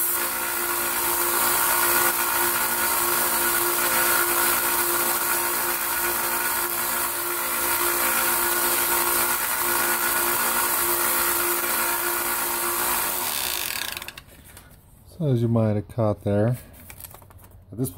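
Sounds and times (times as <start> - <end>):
belt sander running: 0.0 - 14.4.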